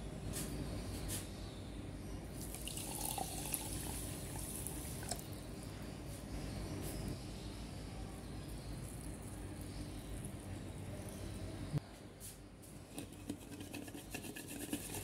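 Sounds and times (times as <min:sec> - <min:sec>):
water pouring into a bowl: 0:02.4 - 0:05.3.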